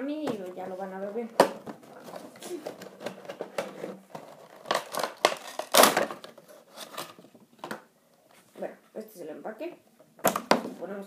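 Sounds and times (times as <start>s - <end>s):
cardboard and plastic rustling: 0.3s - 8.5s.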